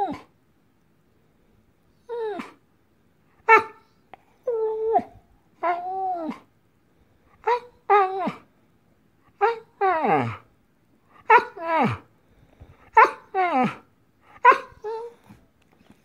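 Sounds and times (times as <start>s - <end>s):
dog vocal calls: 12.9s - 16.0s.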